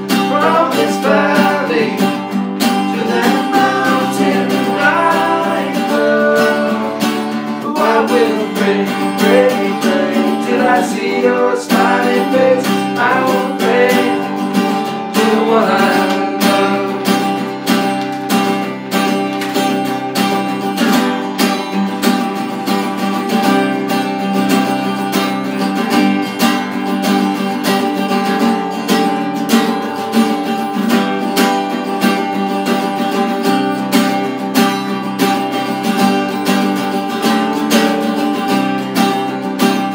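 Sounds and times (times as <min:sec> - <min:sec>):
acoustic bass guitar: 0:00.0 - 0:39.9
acoustic guitar strumming: 0:00.0 - 0:39.9
man singing without words: 0:00.1 - 0:17.5.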